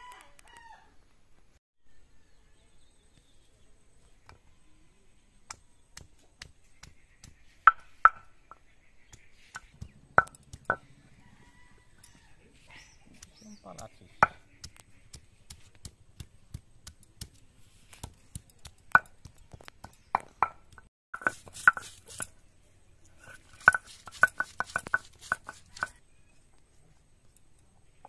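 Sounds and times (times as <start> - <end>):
grinding stone knocking on stone slab: 23.6 - 26.0.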